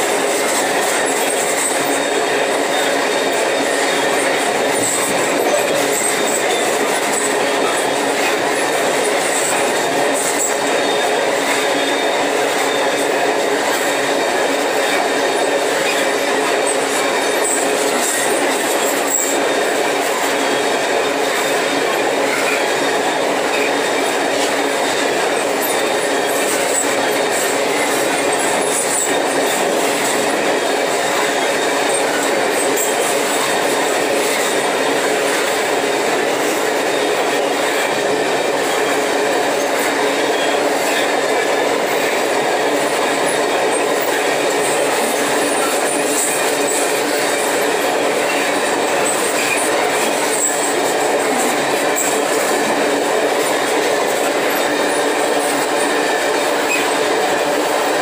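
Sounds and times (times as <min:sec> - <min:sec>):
train wheels rumbling on rails: 0:00.0 - 0:58.0
faint high wheel squeal: 0:01.0 - 0:13.2, 0:15.7 - 0:23.8, 0:39.6 - 0:41.5, 0:54.4 - 0:57.0.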